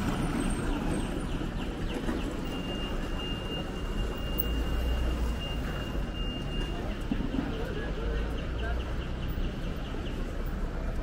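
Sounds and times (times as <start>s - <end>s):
traffic hum: 0.0s - 11.0s.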